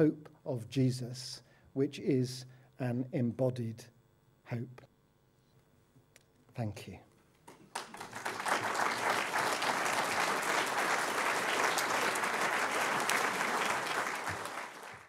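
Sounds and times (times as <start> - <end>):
audience applauding: 7.5 - 15.0.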